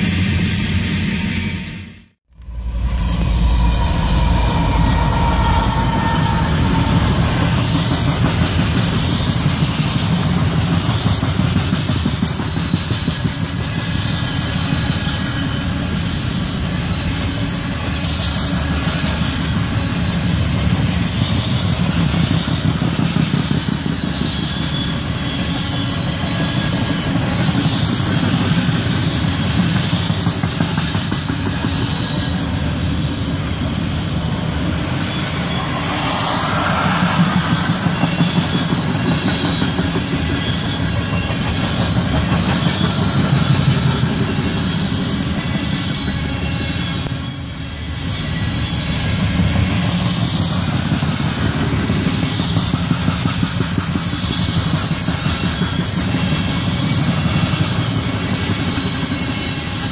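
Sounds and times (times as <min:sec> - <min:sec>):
train wheels rumbling on rails: 0:00.0 - 0:59.9
faint high whine: 0:02.3 - 0:07.9.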